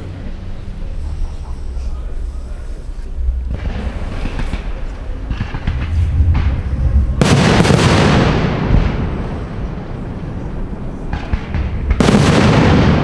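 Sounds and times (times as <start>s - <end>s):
firework pops: 3.5s - 9.0s.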